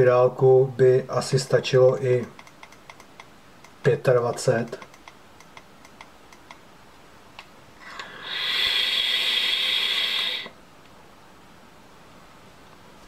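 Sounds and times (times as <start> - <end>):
hiss of air and sizzling coil: 8.0 - 10.6.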